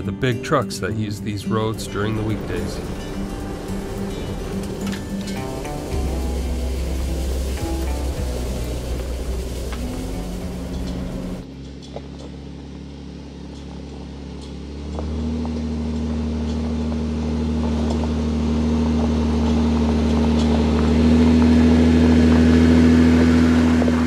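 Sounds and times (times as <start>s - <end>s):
car engine running: 1.3s - 24.0s
stones clicking under tyres: 2.1s - 12.8s, 13.4s - 24.0s.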